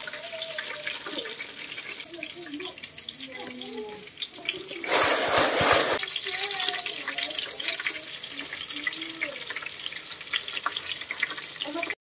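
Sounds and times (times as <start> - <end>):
food deep-frying in oil: 0.0 - 12.0
loud rushing hiss: 4.9 - 6.0.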